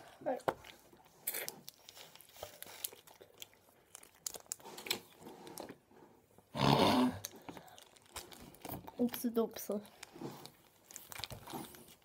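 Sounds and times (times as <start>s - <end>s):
plastic tubes crinkling: 0.2s - 5.8s, 7.2s - 12.0s
ice lollies sucked and bitten: 1.1s - 3.3s.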